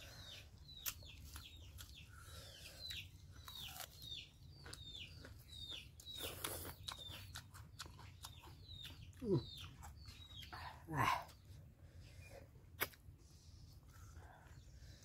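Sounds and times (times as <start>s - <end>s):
bird chirping: 0.0s - 12.5s
soft chewing clicks: 0.6s - 10.6s.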